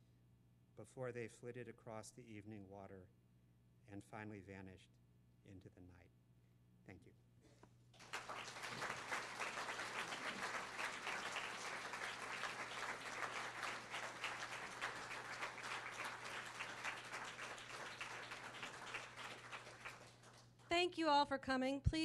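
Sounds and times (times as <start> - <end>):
audience applauding: 8.0 - 20.6.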